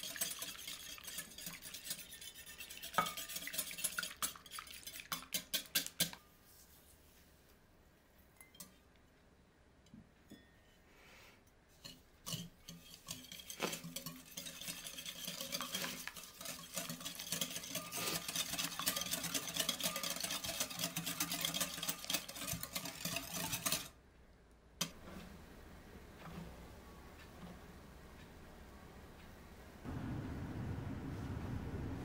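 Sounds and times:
wire whisk beating in a glass bowl: 0.0s - 6.2s, 12.3s - 23.9s.

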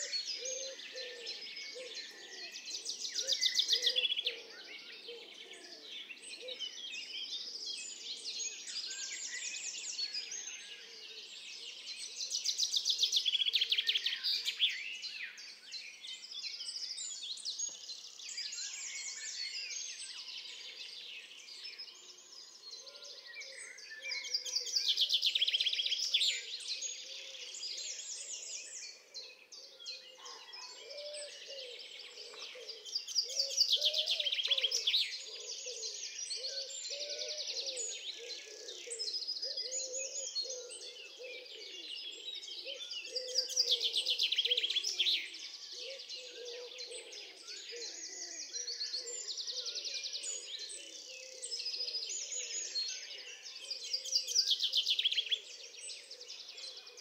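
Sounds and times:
small birds chirping and singing: 0.0s - 57.0s.

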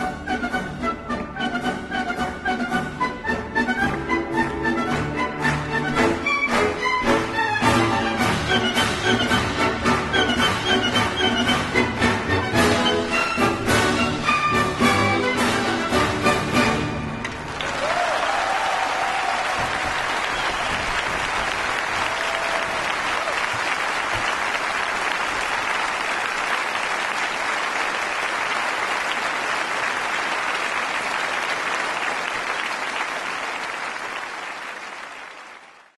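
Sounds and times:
audience applauding: 17.2s - 36.0s.

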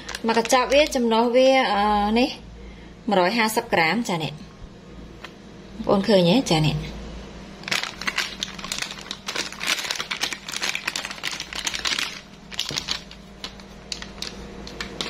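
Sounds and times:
plastic packets crinkling: 0.0s - 1.0s, 7.6s - 15.0s.

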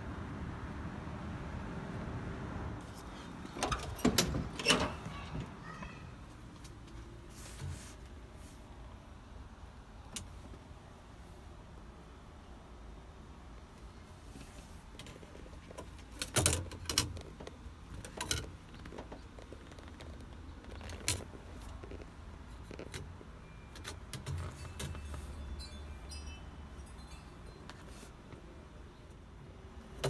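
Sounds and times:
metallic clinks: 23.4s - 28.1s
high jingle: 24.5s - 28.1s.

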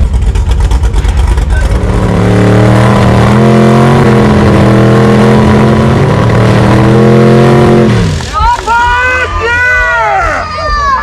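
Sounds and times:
car engine revving hard: 0.0s - 8.4s.

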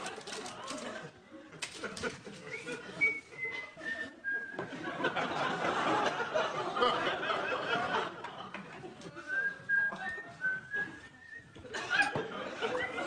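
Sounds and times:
studio audience laughter: 0.5s - 13.0s
person whistling a tune: 2.5s - 4.7s, 9.3s - 11.6s.

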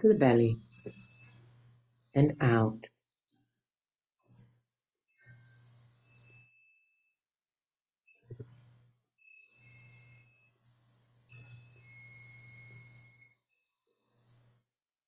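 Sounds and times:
chimes ringing: 2.2s - 2.8s.

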